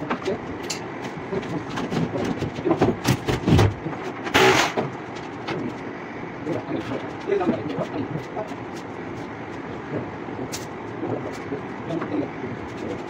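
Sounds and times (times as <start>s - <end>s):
knocks and clatter of chalkboard: 1.4s - 5.7s.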